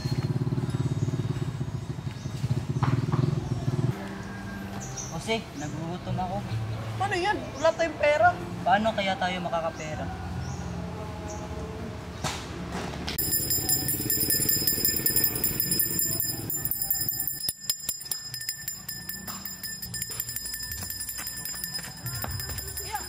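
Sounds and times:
handbell ringing rapidly: 13.2s - 23.0s.

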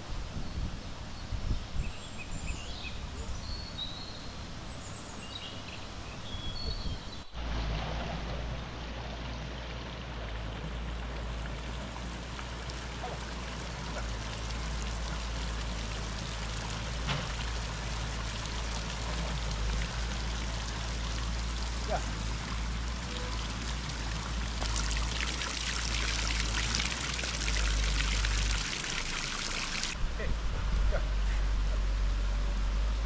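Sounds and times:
running water: 7.3s - 30.0s.

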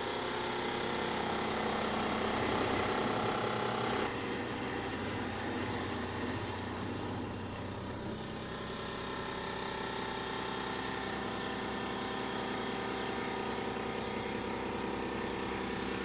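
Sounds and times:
milling machine cutting metal: 0.0s - 16.0s.

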